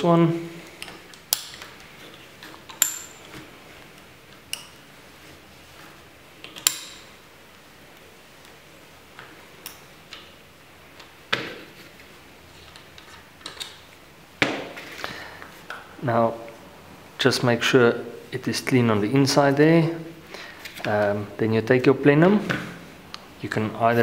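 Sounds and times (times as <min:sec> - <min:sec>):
metallic clinks and taps: 0:02.7 - 0:03.4.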